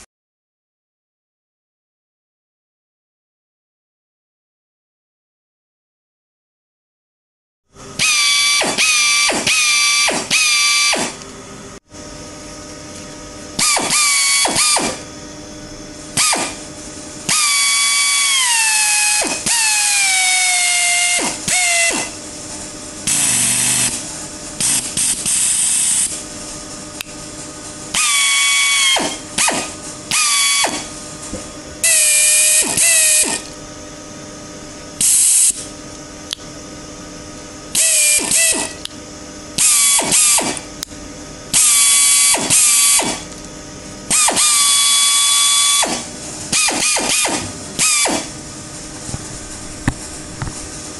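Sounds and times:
pneumatic air drill whining: 8.0 - 11.2, 13.6 - 15.1, 16.1 - 16.7, 17.3 - 22.2, 23.0 - 24.0, 24.6 - 26.2, 27.9 - 31.0, 31.8 - 33.6, 35.0 - 35.7, 37.7 - 38.8, 39.6 - 40.7, 41.5 - 43.4, 44.1 - 48.4.

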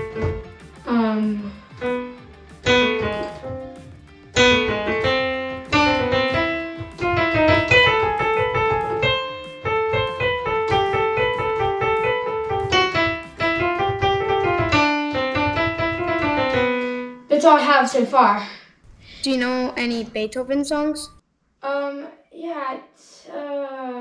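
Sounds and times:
electronic keyboard piano melody: 0.0 - 17.3.

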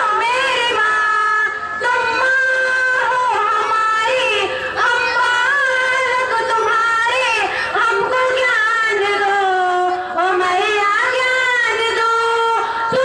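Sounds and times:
girls singing through a loudspeaker: 0.0 - 13.0.

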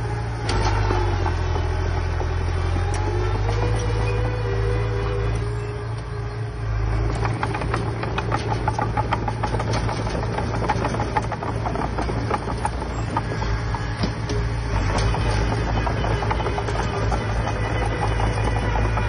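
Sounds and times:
diesel machine running: 0.0 - 19.0
metal clicks and knocks: 7.0 - 19.0.

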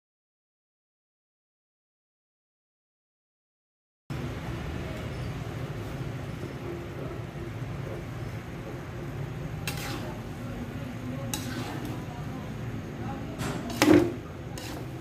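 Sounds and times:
metal spatula scraping a wok: 9.5 - 12.1, 13.6 - 15.0.

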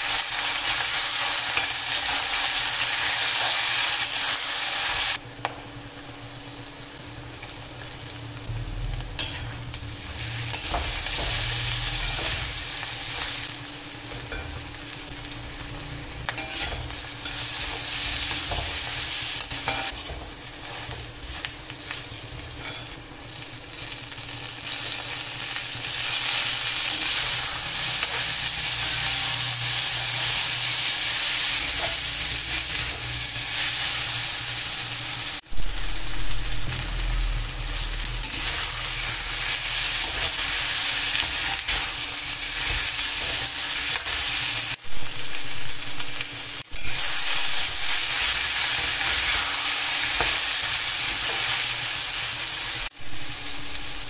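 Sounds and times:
vegetables sizzling in hot oil: 0.0 - 54.0
metal spatula scraping a pan: 9.2 - 13.5, 16.3 - 23.0, 26.0 - 34.7, 37.3 - 44.7.

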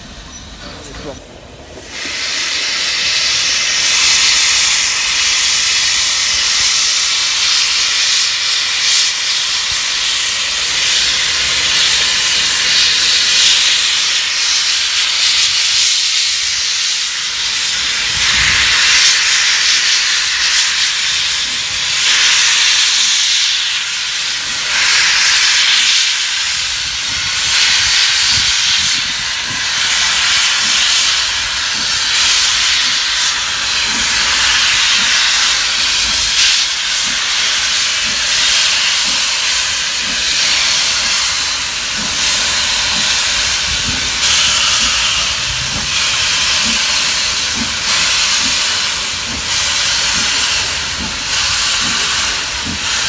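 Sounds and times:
steam locomotive hissing: 0.0 - 53.0.

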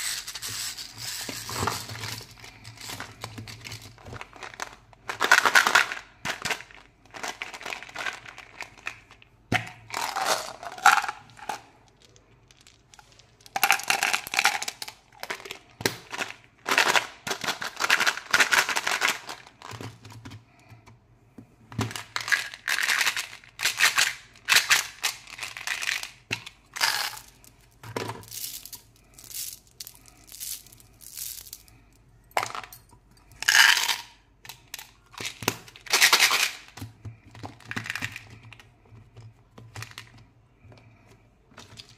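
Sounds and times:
plastic packets crinkling: 0.8 - 9.3.

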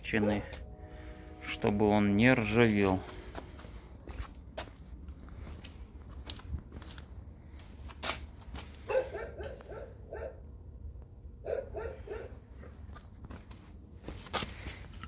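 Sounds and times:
dog barking: 0.1 - 0.6, 8.9 - 10.4, 11.4 - 12.4.

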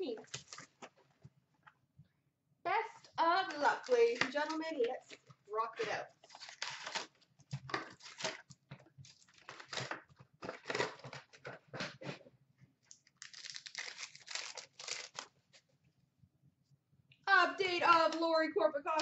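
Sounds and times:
wrappers crinkling and tearing: 0.0 - 0.9, 3.5 - 5.2, 6.0 - 11.5, 12.9 - 15.4
card stock rustling: 3.4 - 12.2, 13.0 - 15.4.

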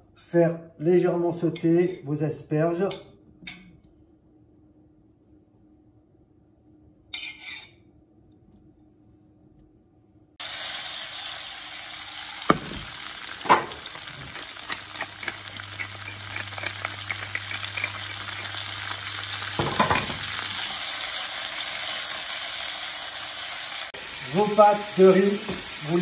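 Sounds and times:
vegetables sizzling in a frying pan: 10.4 - 26.0
pepper mill grinding: 12.0 - 22.2.

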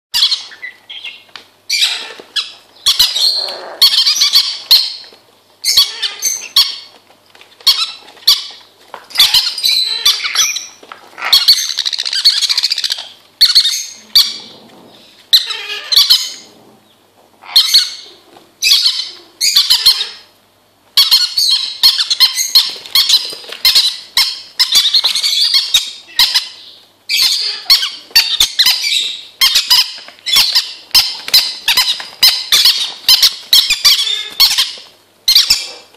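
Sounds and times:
parrots squawking: 0.2 - 7.0, 7.6 - 16.6, 17.4 - 20.3, 21.0 - 35.9.

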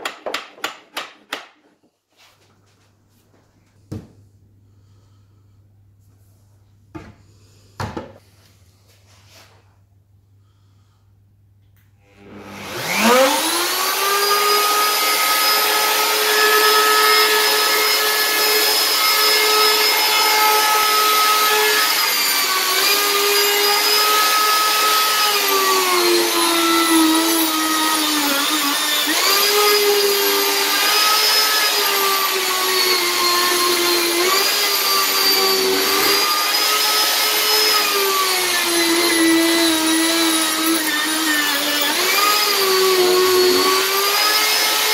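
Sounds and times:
router whining: 12.1 - 44.9.

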